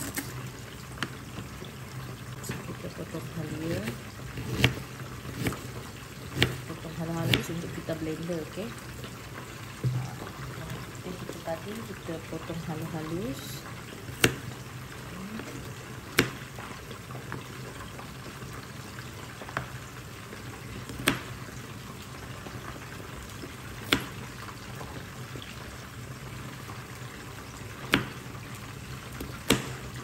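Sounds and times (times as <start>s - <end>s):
chicken sizzling in oil: 0.0s - 30.0s
knife chopping on cutting board: 29.2s - 29.8s.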